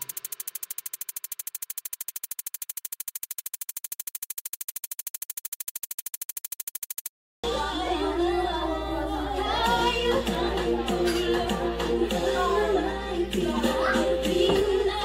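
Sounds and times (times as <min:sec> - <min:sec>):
electronic buzzing pulse music: 0:00.0 - 0:07.1
music with singing: 0:07.4 - 0:15.0.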